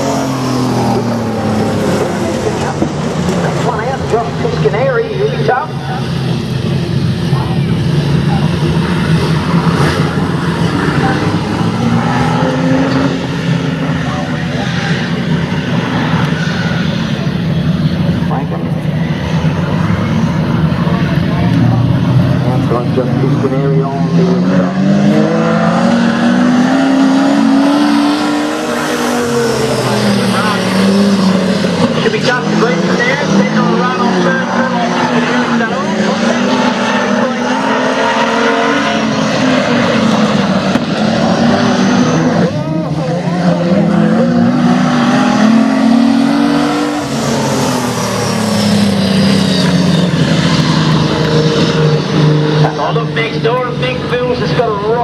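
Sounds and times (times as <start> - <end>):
race car engines: 0.0 - 55.0.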